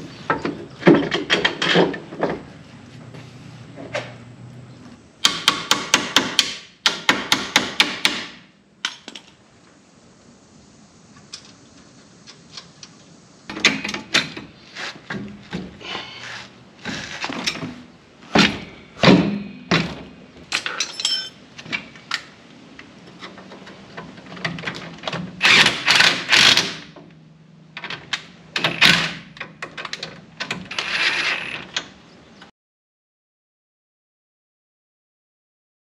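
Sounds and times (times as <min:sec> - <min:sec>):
metal tools clanking: 0:20.5 - 0:21.4.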